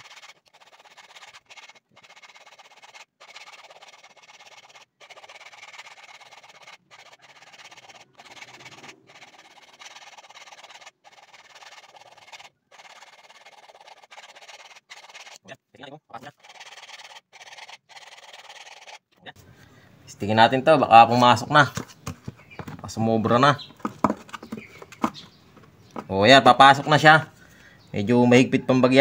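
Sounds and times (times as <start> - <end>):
hand file rasping on metal: 0.0 - 15.4, 16.2 - 19.0.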